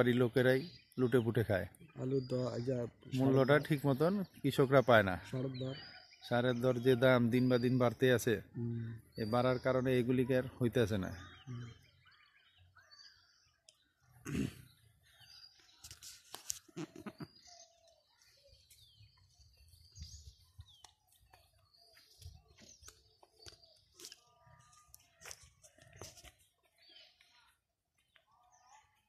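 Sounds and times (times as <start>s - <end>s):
small birds chirping: 0.0s - 29.0s
rustles: 15.7s - 17.3s.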